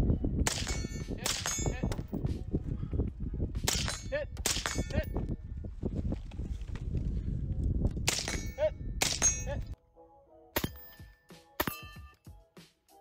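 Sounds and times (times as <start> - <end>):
metallic clangs of steel targets: 0.4 - 2.1, 3.7 - 5.2, 8.1 - 9.8, 10.6 - 12.2.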